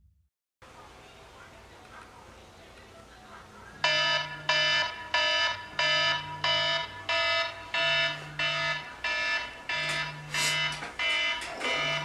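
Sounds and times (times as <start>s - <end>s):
phone alarm tone: 3.8s - 12.0s.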